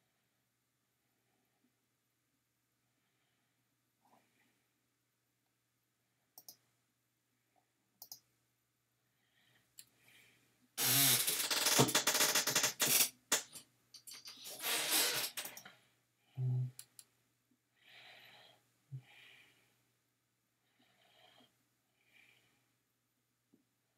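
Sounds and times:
computer mouse clicks: 6.4s - 6.6s, 8.0s - 8.2s
soft breathy sound: 9.0s - 10.8s, 17.7s - 20.0s, 20.6s - 22.8s.

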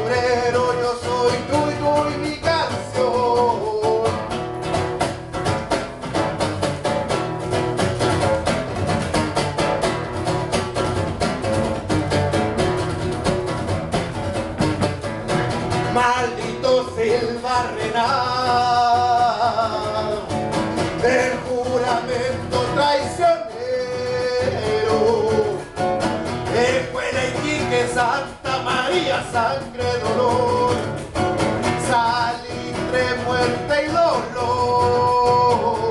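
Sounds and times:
man singing: 0.0s - 5.0s, 15.7s - 35.9s
acoustic guitar strumming: 0.0s - 35.9s.

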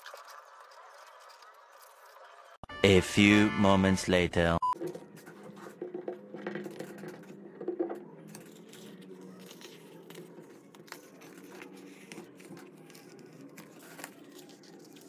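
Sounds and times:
vinyl wrap crinkling: 8.3s - 15.0s.

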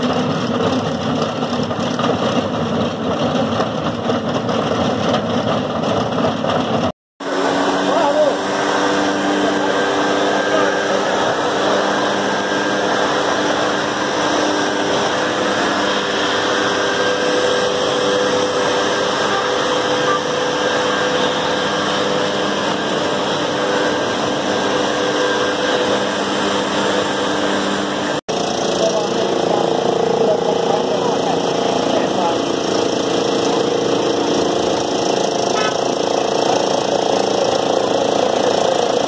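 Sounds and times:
leaf blower engine running: 0.0s - 39.0s
air rushing from blower tube: 7.2s - 30.6s.

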